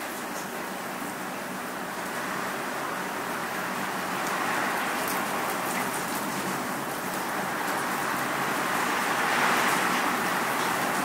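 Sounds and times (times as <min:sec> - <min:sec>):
rain falling: 0:03.0 - 0:11.0.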